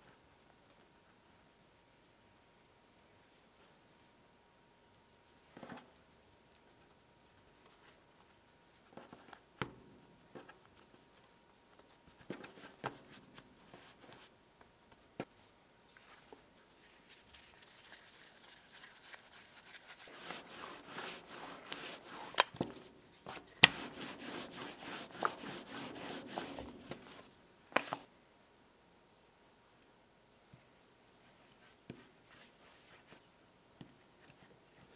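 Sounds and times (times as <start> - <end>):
hands patting dough: 16.0 - 28.1
rolling pin rolling dough: 19.0 - 28.0.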